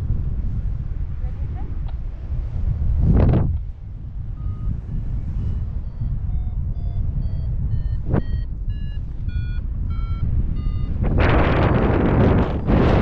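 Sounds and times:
wind on microphone: 0.0 - 13.0
short electronic beeps: 4.4 - 4.8, 5.4 - 11.3.

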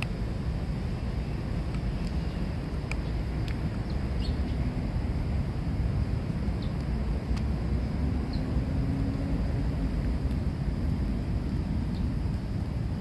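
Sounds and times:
steady low rumble: 0.0 - 13.0
high bird chirps: 3.8 - 4.6.

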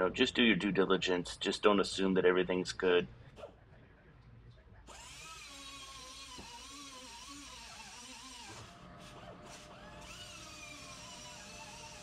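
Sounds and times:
air grinder whining cutting steel: 4.9 - 12.0.

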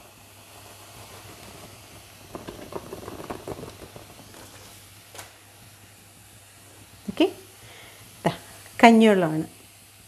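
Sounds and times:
crackling and pattering of food: 0.0 - 5.4
stone pot sizzling: 0.0 - 10.0.

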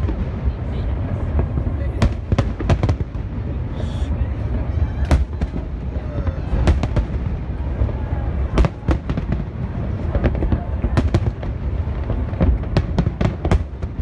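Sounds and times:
fireworks bangs and cracks: 0.0 - 14.0
low rumble: 0.0 - 14.0.

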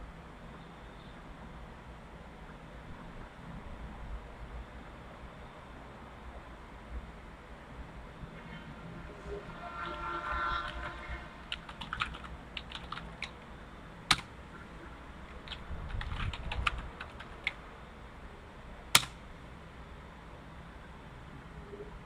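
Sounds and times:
keyboard typing: 10.6 - 13.5, 14.1 - 14.3, 15.2 - 17.6, 19.0 - 19.2
loud key strike: 18.9 - 19.2.

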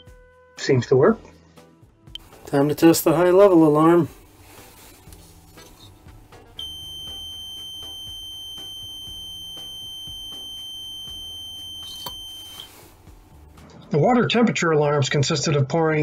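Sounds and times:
high-pitched alarm buzzer: 6.6 - 12.7.

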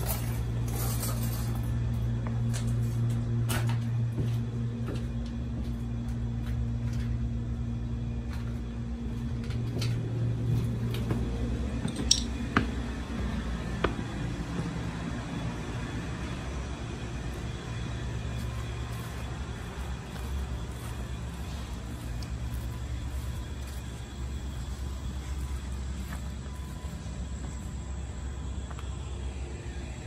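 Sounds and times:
footsteps: 0.0 - 7.4, 8.2 - 14.9, 18.1 - 27.9
air conditioner unit humming: 0.0 - 30.0.

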